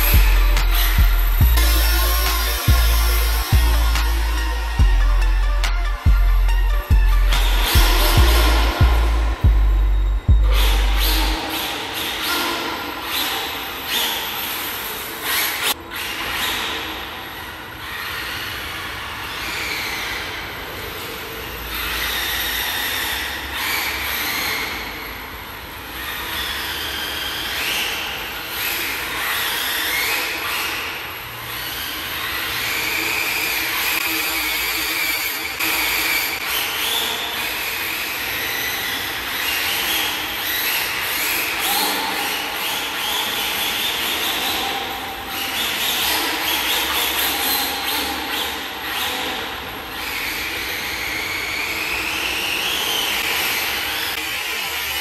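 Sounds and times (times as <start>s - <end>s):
toy car motor whining: 0.0s - 9.4s, 10.0s - 55.0s.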